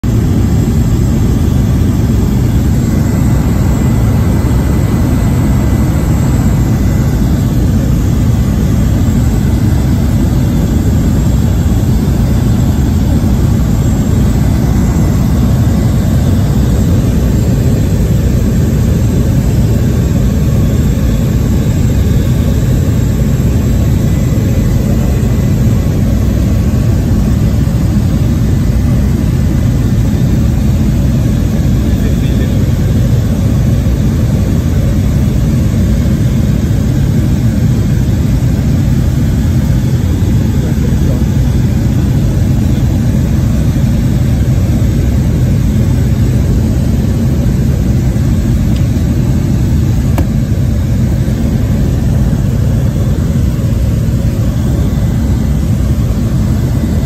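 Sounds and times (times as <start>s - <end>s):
propeller plane engine drone: 0.0s - 57.0s
thin steady whine: 0.0s - 57.0s.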